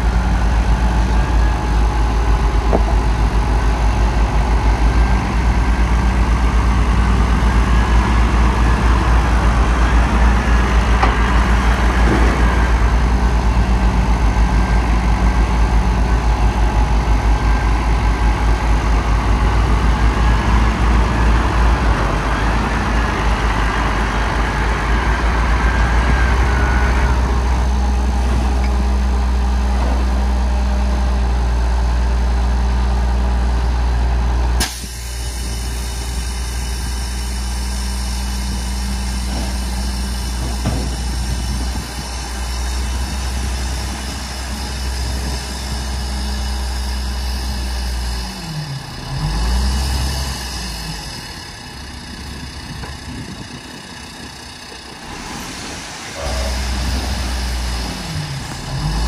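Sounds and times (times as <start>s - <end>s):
diesel engine deep rumble: 0.0s - 59.0s.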